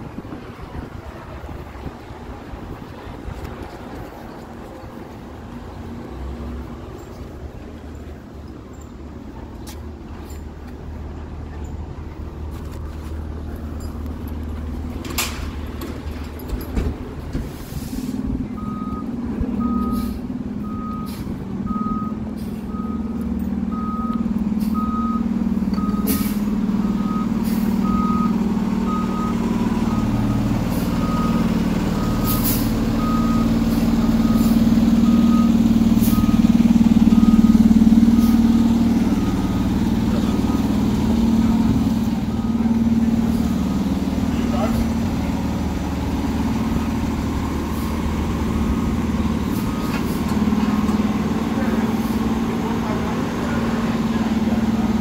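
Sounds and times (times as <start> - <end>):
truck engine running: 0.0 - 55.0
reversing alarm beeping: 18.6 - 44.8, 47.8 - 50.4.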